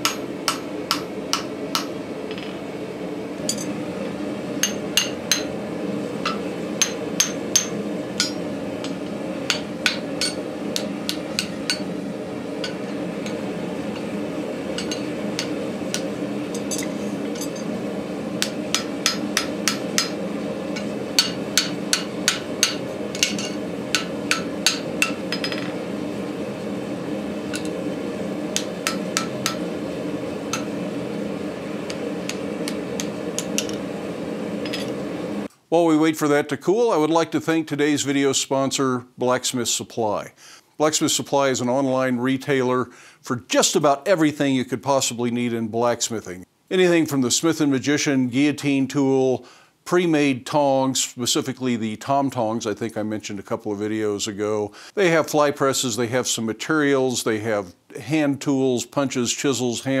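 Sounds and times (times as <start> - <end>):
hammer ringing on hot steel: 0.0 - 2.5, 4.6 - 5.6, 6.2 - 12.0, 12.6 - 14.1, 14.8 - 17.7, 18.4 - 20.2, 20.8 - 25.7, 28.6 - 29.7, 30.5 - 30.8
steady hum: 0.0 - 36.5.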